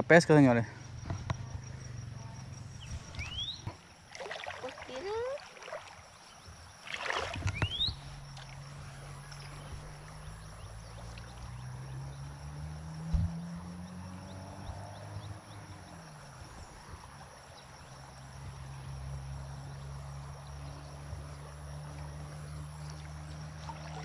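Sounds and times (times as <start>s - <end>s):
rising chirps: 2.5s - 3.7s
water swishing and splashing: 2.9s - 11.8s, 21.8s - 24.0s.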